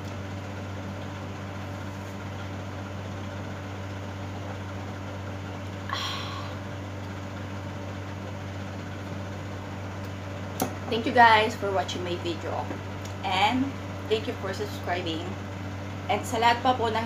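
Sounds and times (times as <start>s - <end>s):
appliance humming: 0.0s - 17.0s.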